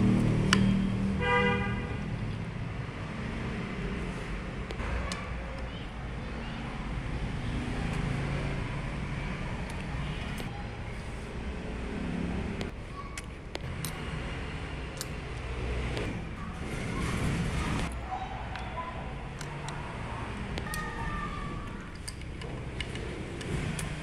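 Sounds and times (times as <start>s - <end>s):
low rumble of vehicles: 0.0s - 24.0s
light metallic clicks of parts: 12.6s - 14.2s, 14.8s - 16.1s, 17.8s - 24.0s.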